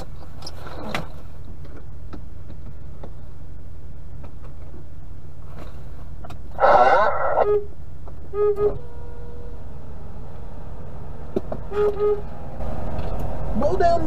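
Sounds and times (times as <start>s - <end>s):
steady low hum: 0.0s - 14.0s
truck air horn blasting: 8.3s - 9.7s, 11.7s - 12.3s.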